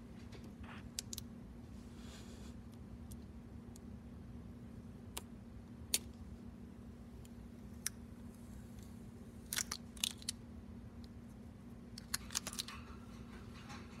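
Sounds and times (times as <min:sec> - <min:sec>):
low steady hum: 0:00.0 - 0:14.0
crackles of tape peeling: 0:08.7 - 0:10.4.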